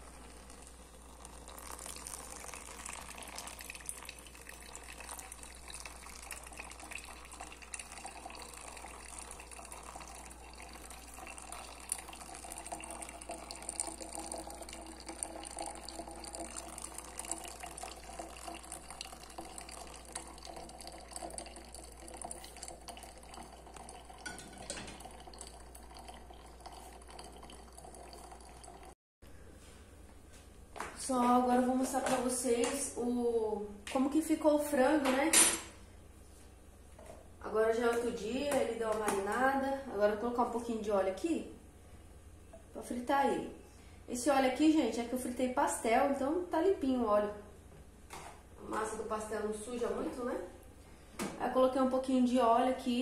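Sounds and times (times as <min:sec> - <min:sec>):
water pouring into coffee filter: 0:00.0 - 0:29.0.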